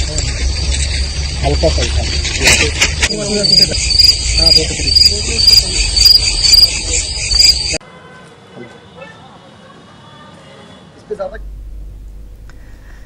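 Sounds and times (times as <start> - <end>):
crickets chirping: 0.0 - 7.8.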